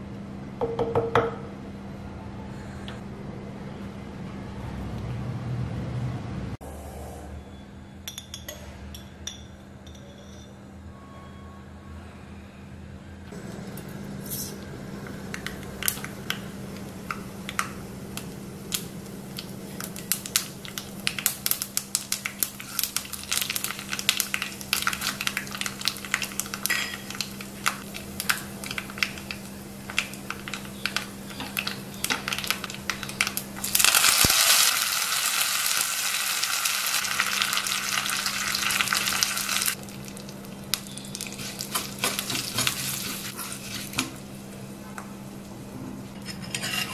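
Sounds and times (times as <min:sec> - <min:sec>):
loud dense sizzle: 0:13.4 - 0:44.4
spices crackling in hot oil: 0:15.3 - 0:44.2.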